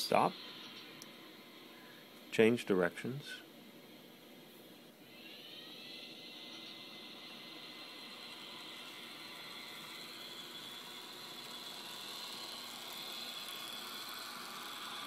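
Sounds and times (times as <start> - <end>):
model train running on track: 0.0 - 0.8, 5.2 - 15.0.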